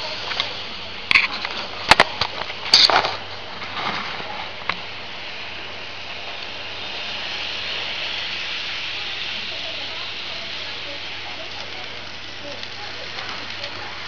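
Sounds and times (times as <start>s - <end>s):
model train running hiss: 0.0s - 14.0s.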